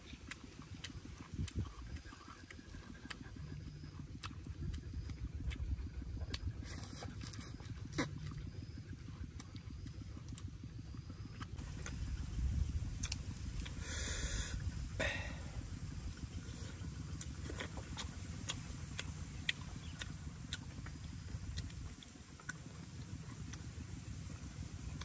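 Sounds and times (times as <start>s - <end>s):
wind on microphone: 1.2s - 2.2s, 11.6s - 16.2s.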